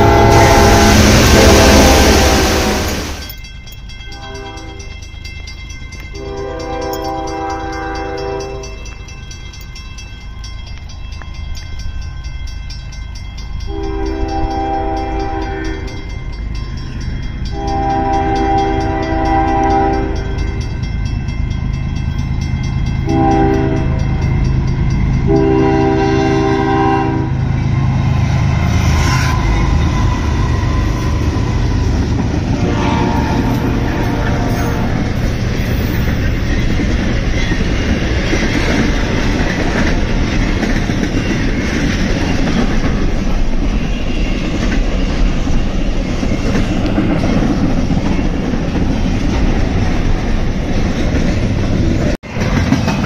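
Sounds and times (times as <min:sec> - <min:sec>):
locomotive horn blasts: 0:00.0 - 0:03.3, 0:04.1 - 0:04.9, 0:06.1 - 0:09.0, 0:13.6 - 0:16.1, 0:17.5 - 0:20.6, 0:23.0 - 0:24.2, 0:25.2 - 0:28.0, 0:32.5 - 0:35.9
locomotive rumble passing: 0:00.0 - 0:53.0.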